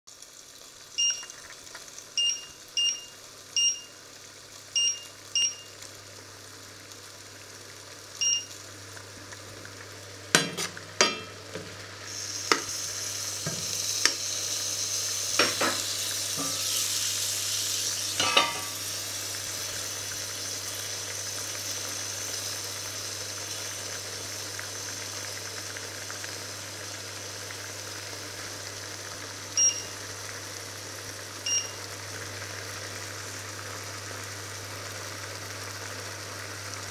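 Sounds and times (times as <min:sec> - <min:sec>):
food sizzling in a pan: 0:00.1 - 0:36.9
induction hob beeps: 0:01.0 - 0:01.4, 0:02.2 - 0:04.0, 0:04.8 - 0:05.8, 0:08.2 - 0:08.6, 0:29.6 - 0:30.0, 0:31.4 - 0:31.8
pan knocking: 0:10.4 - 0:11.7, 0:18.2 - 0:18.8.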